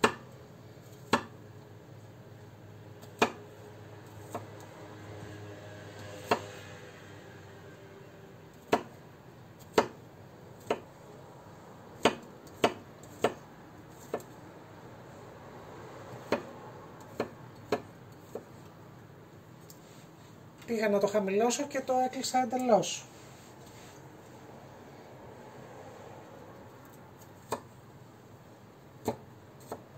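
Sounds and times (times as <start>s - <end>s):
knife chopping on cutting board: 0.0s - 0.2s, 1.0s - 1.4s, 3.1s - 3.4s, 6.2s - 6.5s, 8.7s - 8.9s, 9.6s - 10.0s, 10.6s - 10.9s, 12.0s - 13.4s, 14.0s - 14.3s, 16.2s - 18.5s, 29.0s - 29.9s.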